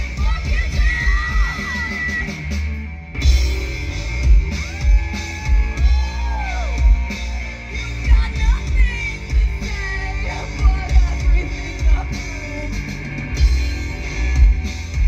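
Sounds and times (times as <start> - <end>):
punk rock band playing: 0.0 - 15.0
person singing: 7.6 - 13.0.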